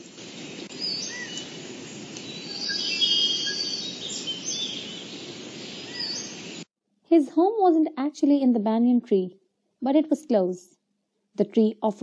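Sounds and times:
birds chirping: 0.0s - 6.7s
bird trill: 0.8s - 1.6s, 2.2s - 6.6s.

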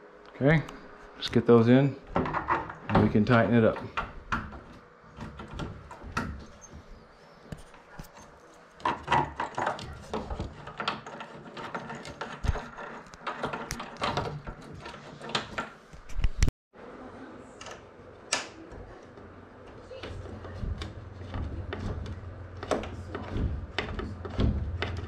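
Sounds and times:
metal clicks and scrapes: 7.5s - 16.4s
wooden knocks: 20.0s - 25.0s.

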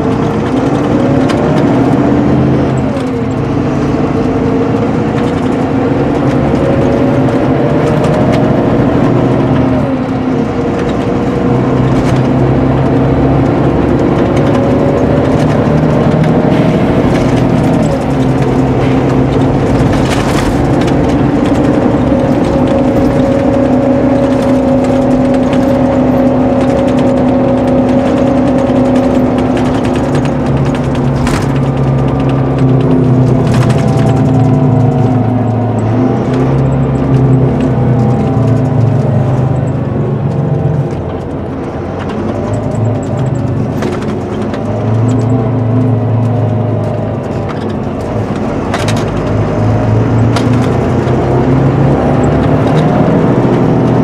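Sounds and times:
coach engine pulling away: 0.0s - 54.0s
gear changes: 0.0s - 54.0s.

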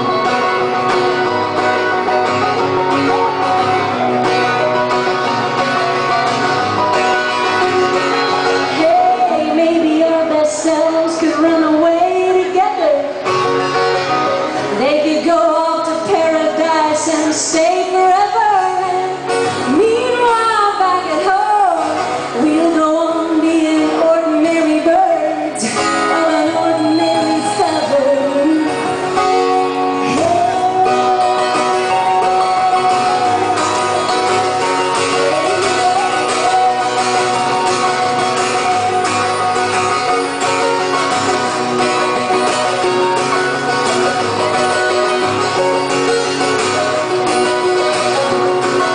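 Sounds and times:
acoustic guitars: 0.0s - 48.9s
woman singing: 8.5s - 13.3s, 14.7s - 39.9s.

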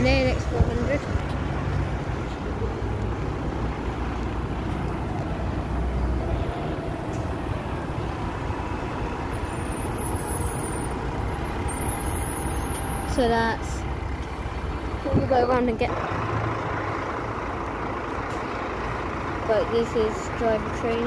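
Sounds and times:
bus engine rumble and tyre noise: 0.0s - 21.0s
double-decker bus passing: 0.0s - 21.0s.

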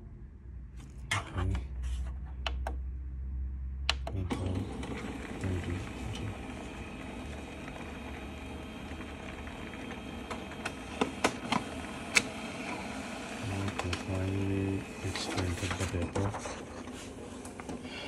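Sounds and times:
laser printer humming: 4.3s - 17.7s
printer clicks: 10.2s - 12.3s.

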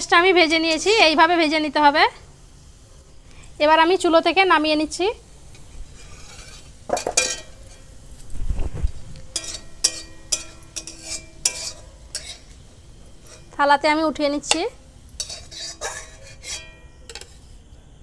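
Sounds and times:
metal spatula scraping pan: 5.5s - 8.0s, 9.3s - 13.6s, 14.5s - 17.6s.

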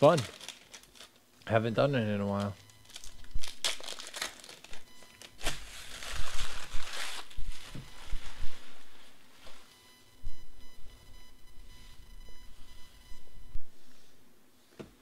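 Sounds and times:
foil wrapper crackling and rustling: 0.0s - 1.6s, 2.3s - 9.6s.

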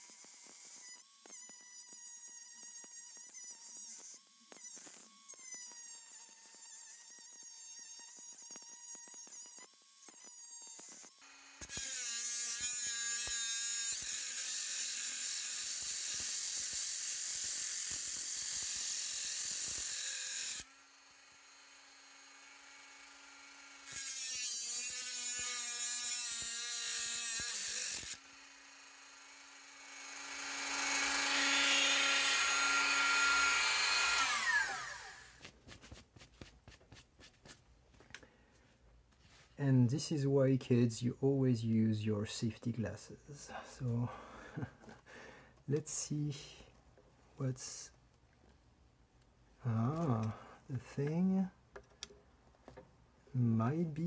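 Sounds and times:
rotary tool grinding metal: 0.0s - 35.4s.

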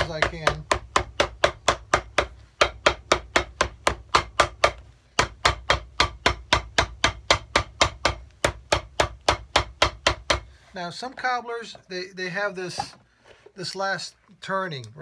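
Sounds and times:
hammer striking leather shoe sole: 0.0s - 10.5s.

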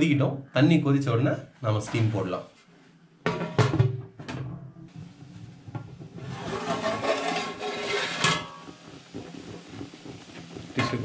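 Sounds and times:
pot lid clanking: 3.3s - 4.6s, 6.4s - 8.8s, 10.8s - 11.0s
boiling water bubbling: 4.1s - 11.0s.

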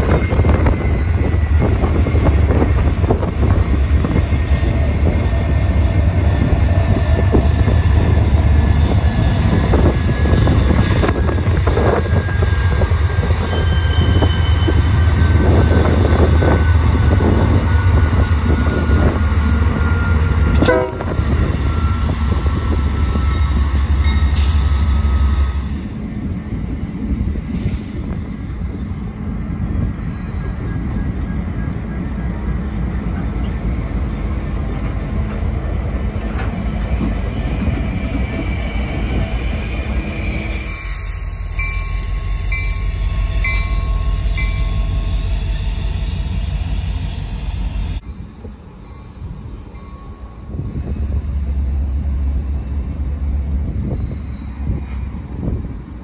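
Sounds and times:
locomotive engine rumble: 0.0s - 40.5s
wheel and rail noise: 0.0s - 56.0s.

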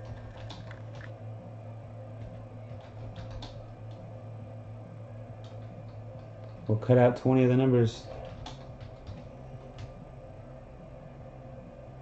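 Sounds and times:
computer keyboard clicks: 0.0s - 1.1s, 2.2s - 4.0s, 8.1s - 10.0s
low hum: 0.0s - 12.0s.

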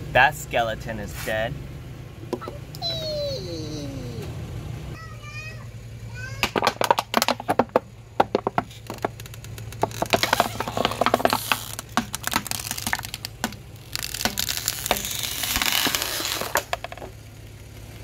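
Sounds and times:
plastic cracking under car tyre: 6.5s - 17.3s.

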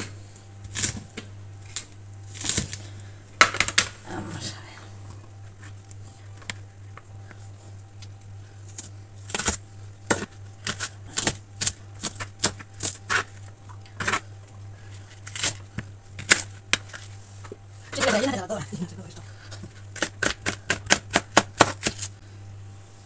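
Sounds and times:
low steady hum: 0.0s - 23.0s
knife chopping on plastic board: 20.0s - 22.1s.

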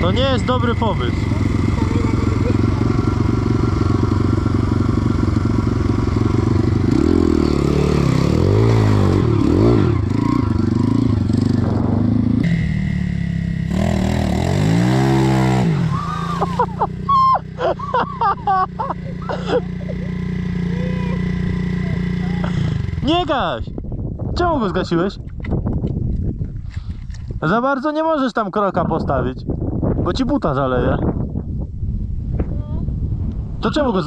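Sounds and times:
dirt bike engine revving: 0.0s - 23.4s
dirt bike engine idling: 0.0s - 23.5s
loud wavering engine bursts: 13.7s - 19.6s.

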